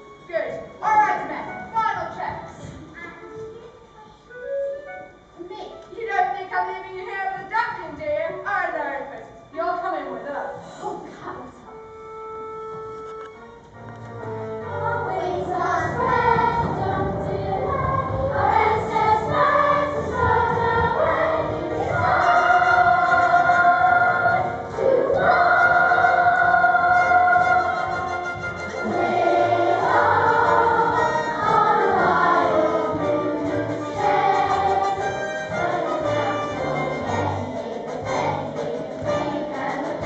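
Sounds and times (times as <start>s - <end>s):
instrumental accompaniment: 11.4s - 40.0s
children's choir singing: 14.5s - 40.0s.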